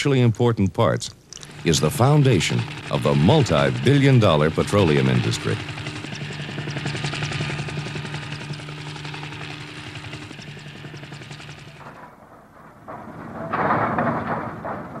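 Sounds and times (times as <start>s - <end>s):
helicopter drone rotor pulsing: 1.3s - 12.2s
pumpjack machinery noise: 1.3s - 15.0s.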